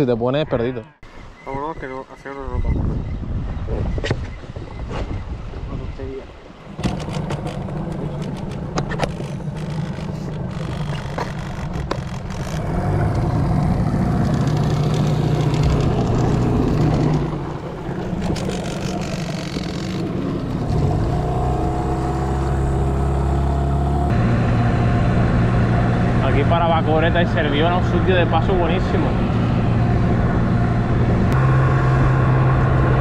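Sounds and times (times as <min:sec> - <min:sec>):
outboard motor running: 0:06.8 - 0:33.0.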